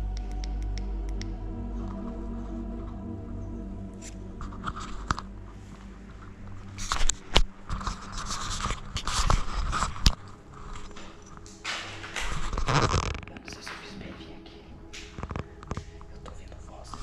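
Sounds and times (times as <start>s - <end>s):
handling noise: 4.0s - 14.0s
footsteps scraping on debris: 4.5s - 14.0s.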